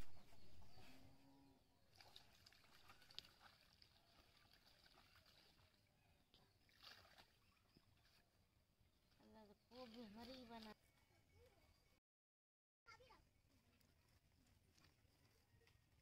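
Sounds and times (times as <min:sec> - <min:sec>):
faint water splashing: 0:01.8 - 0:10.8.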